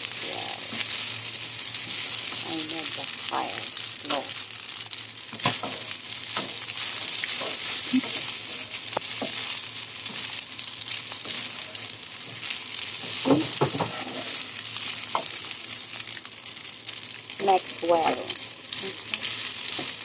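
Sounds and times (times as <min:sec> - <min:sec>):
rice sizzling in a wok: 0:00.0 - 0:20.0
spatula scraping and knocking pan: 0:11.3 - 0:14.4.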